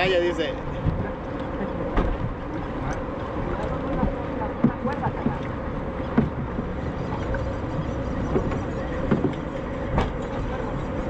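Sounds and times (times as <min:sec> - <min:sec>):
choppy water around a boat: 0:00.0 - 0:11.0
wind: 0:00.0 - 0:11.0
dull knocks: 0:06.0 - 0:06.7, 0:08.3 - 0:10.2.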